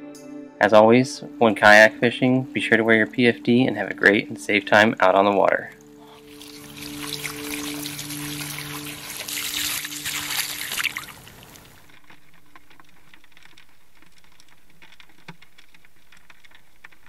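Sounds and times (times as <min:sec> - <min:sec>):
music chord: 0:00.0 - 0:10.8
muffled underwater wash: 0:01.4 - 0:17.0
water pouring off a strainer: 0:05.1 - 0:11.9.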